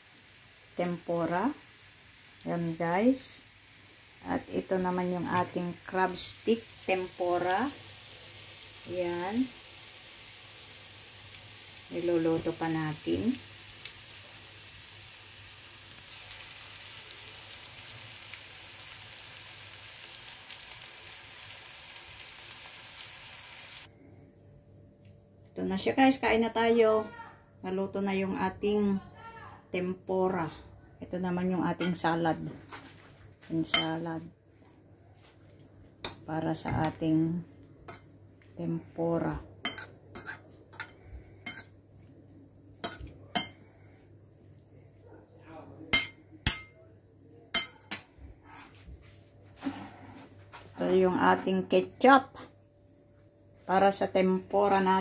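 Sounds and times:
frying sizzle with sharp pops: 0:00.0 - 0:23.9, 0:33.7 - 0:34.0, 0:36.0 - 0:38.6, 0:39.4 - 0:41.8, 0:42.8 - 0:43.6, 0:45.9 - 0:46.7.

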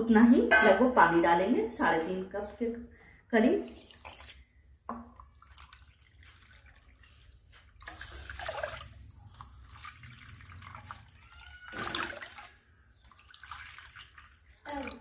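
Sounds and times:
water pouring and splashing: 0:03.4 - 0:15.0.

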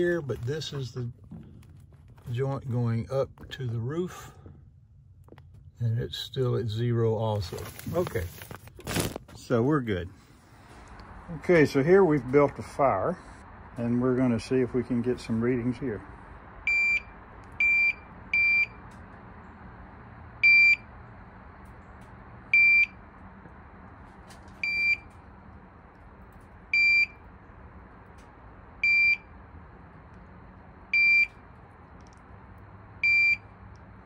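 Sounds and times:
short high alarm beeps: 0:16.7 - 0:18.8, 0:20.4 - 0:20.8, 0:22.5 - 0:23.0, 0:24.6 - 0:25.1, 0:26.8 - 0:27.2, 0:31.0 - 0:31.4, 0:33.0 - 0:33.5.

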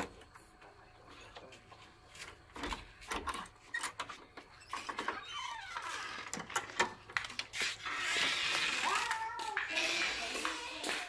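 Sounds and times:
footsteps: 0:07.1 - 0:11.0.

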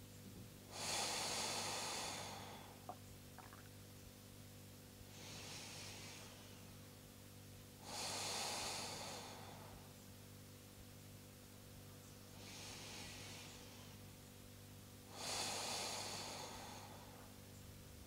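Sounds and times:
person breathing deeply: 0:00.7 - 0:03.0, 0:05.1 - 0:06.8, 0:07.8 - 0:09.9, 0:12.3 - 0:14.1, 0:15.1 - 0:17.4.

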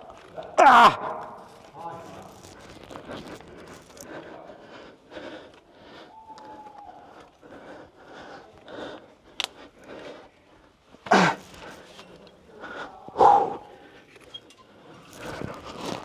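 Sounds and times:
person grunting: 0:00.6 - 0:01.1
person breathing hard: 0:02.9 - 0:14.1.

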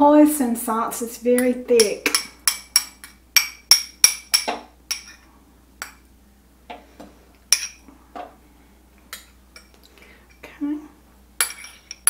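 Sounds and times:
spoon clinking against ceramic bowl: 0:11.4 - 0:12.0.

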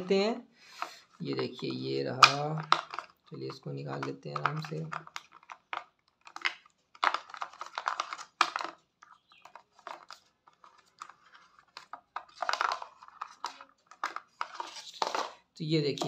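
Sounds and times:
plastic packaging tray rustling: 0:00.7 - 0:16.0.

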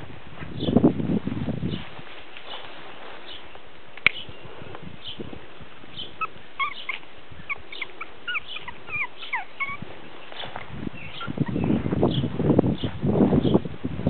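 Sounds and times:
rustling: 0:01.2 - 0:04.0, 0:04.6 - 0:12.4
puppy whimpering: 0:06.0 - 0:11.8.

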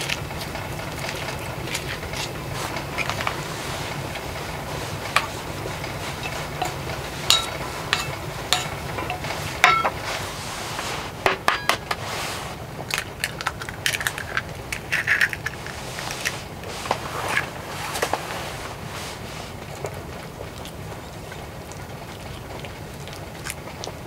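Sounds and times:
food stirred in bowl clicking: 0:00.0 - 0:10.2, 0:12.8 - 0:16.3
steel bowl clinking: 0:04.6 - 0:10.4, 0:11.2 - 0:12.0.

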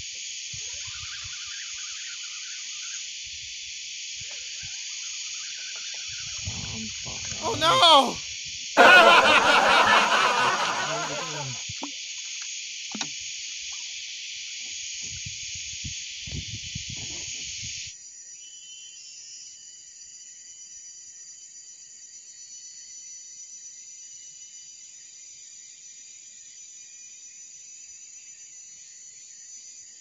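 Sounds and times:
man's wavering exclamation: 0:07.4 - 0:08.2, 0:08.8 - 0:11.6
jungle insects droning: 0:08.8 - 0:11.6.

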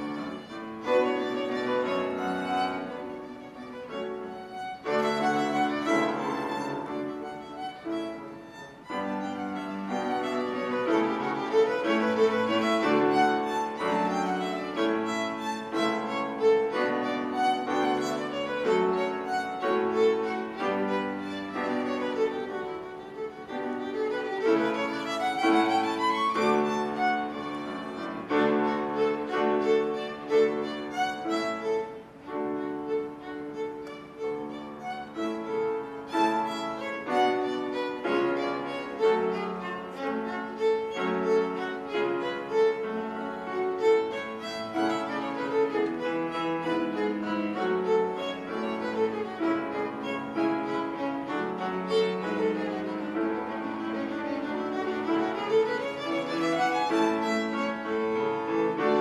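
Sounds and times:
piano accompaniment: 0:00.0 - 0:59.0
violin playing fast notes: 0:00.0 - 0:59.0.

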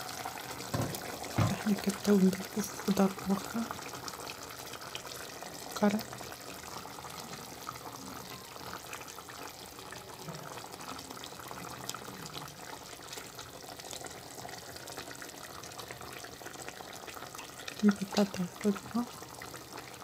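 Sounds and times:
broth bubbling in pot: 0:00.0 - 0:20.0
light knocks in pot: 0:00.7 - 0:01.7.

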